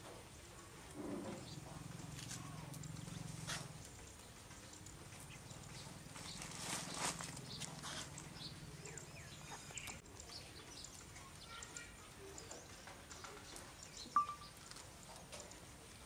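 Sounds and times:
faint bird chirps: 2.4 - 15.2.

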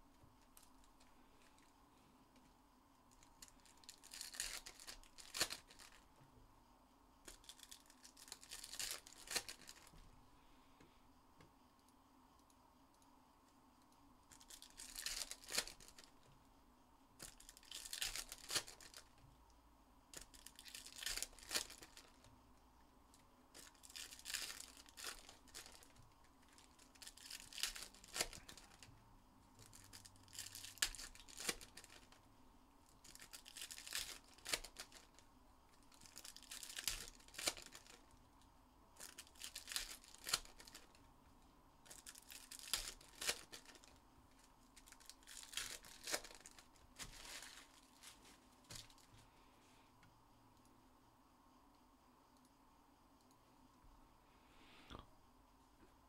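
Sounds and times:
foil wrappers tearing open: 3.5 - 6.0, 14.4 - 16.1, 17.2 - 19.1, 20.2 - 22.1, 23.6 - 25.9, 26.6 - 28.8, 29.7 - 32.1, 33.0 - 35.1, 36.0 - 38.0, 39.0 - 40.8, 41.9 - 43.9, 44.8 - 48.3.

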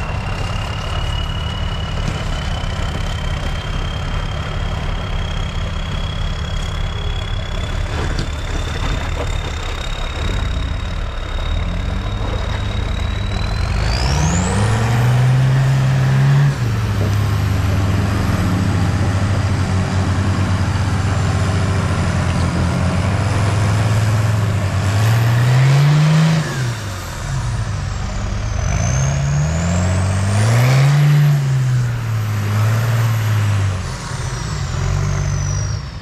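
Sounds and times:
diesel engine revving: 0.0 - 36.0
thin high whistle: 3.4 - 9.1.

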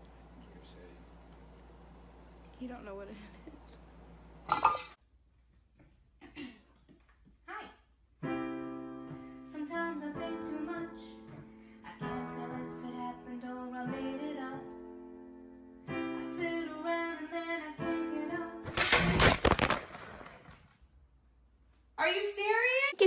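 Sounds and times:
woman singing: 9.4 - 14.8, 16.0 - 18.6.

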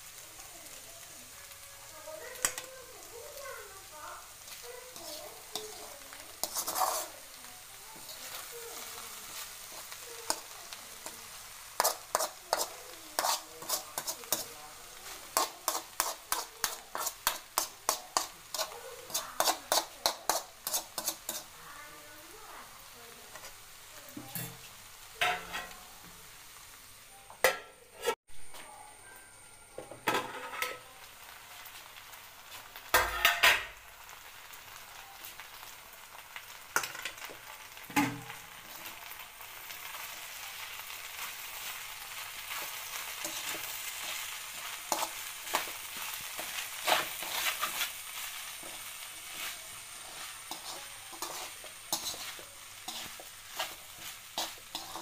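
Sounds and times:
food sizzling: 0.0 - 55.0
spatula scraping a metal pan: 4.4 - 7.3, 11.3 - 21.6, 24.2 - 25.8, 40.6 - 55.0.

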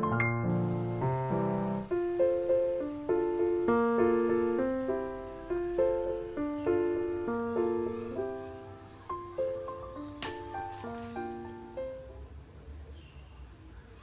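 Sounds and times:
gentle piano tune: 0.0 - 12.5.

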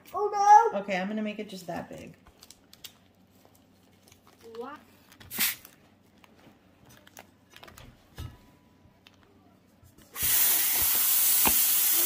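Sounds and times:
short hiss: 5.3 - 5.6
gas hissing from tank nozzle: 10.2 - 12.0.

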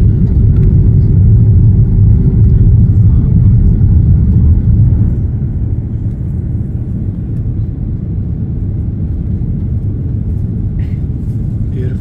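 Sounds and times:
jet airliner cabin rumble: 0.0 - 12.0.

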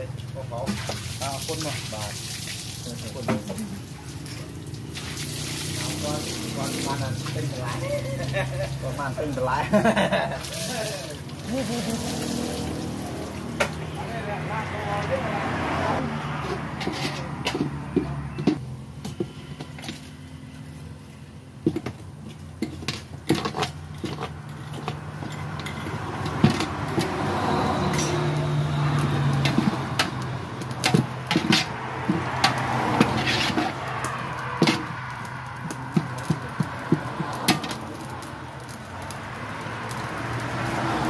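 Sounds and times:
metal ladle scraping a pot: 16.3 - 18.6, 22.6 - 28.4, 30.8 - 35.0.

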